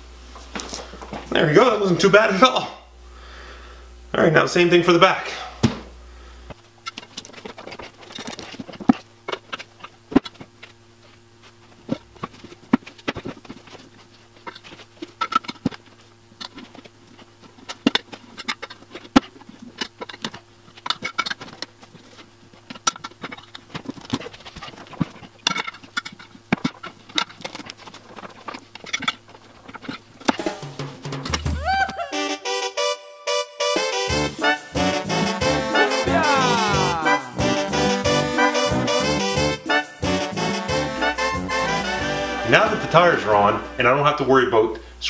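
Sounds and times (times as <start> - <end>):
steady low hum: 0.0 - 31.9, 34.1 - 45.0
tire irons clicking on wheel rim: 6.6 - 31.5.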